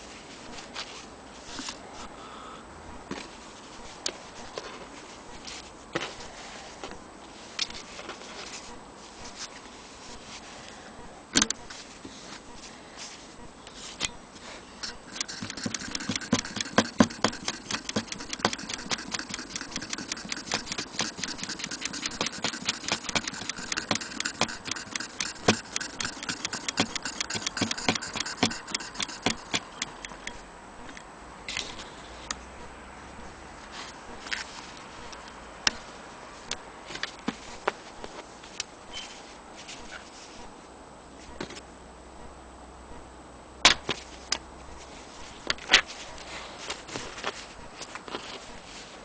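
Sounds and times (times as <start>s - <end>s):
sharp click: 11.4s - 11.6s
sewing machine clicking: 15.1s - 30.2s.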